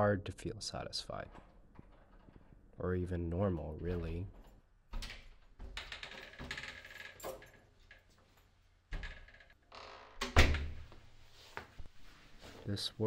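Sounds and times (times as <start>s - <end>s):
keys rattling in a lock: 1.3s - 2.7s, 3.8s - 9.6s.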